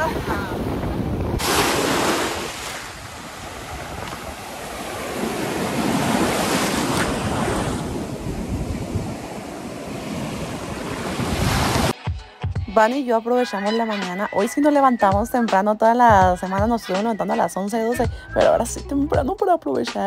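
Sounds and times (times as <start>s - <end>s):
wind buffeting microphone: 0.0s - 11.9s
sea surf breaking on shore: 0.0s - 12.0s.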